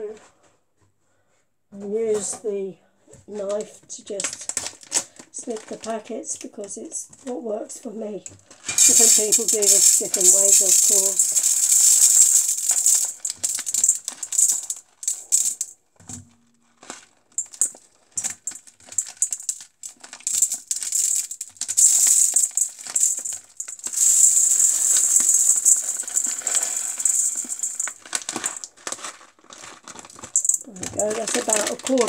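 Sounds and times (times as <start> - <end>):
plastic packet crinkling: 4.2 - 5.9, 8.5 - 15.7, 16.7 - 32.0
rice rattling into metal colander: 8.7 - 15.7, 17.4 - 29.1, 29.9 - 32.0.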